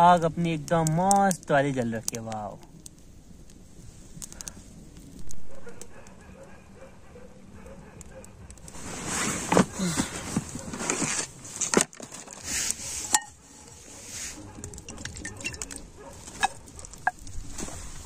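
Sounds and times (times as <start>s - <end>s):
backpack being rummaged: 8.7s - 13.2s
tent fabric rustling: 8.7s - 14.6s, 17.3s - 18.0s
metal plate clinking: 13.0s - 13.4s, 14.8s - 17.2s.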